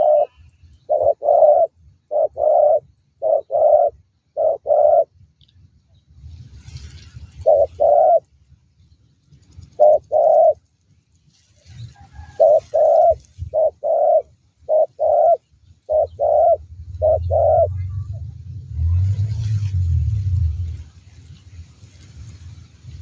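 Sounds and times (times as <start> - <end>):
dove cooing: 0.0 - 5.1, 7.4 - 8.3, 9.6 - 10.6, 11.9 - 18.2
low rumble: 16.1 - 23.0.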